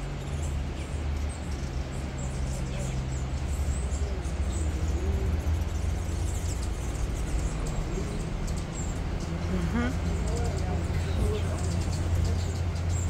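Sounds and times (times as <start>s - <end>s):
hummingbirds chirping: 0.0s - 13.0s
steady low rumble: 0.0s - 13.0s.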